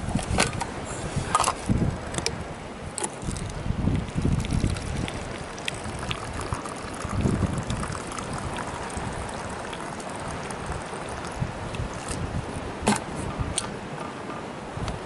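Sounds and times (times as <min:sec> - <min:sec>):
wind rumbling on microphone: 0:00.0 - 0:15.0
drink pouring into metal cup: 0:03.2 - 0:12.2.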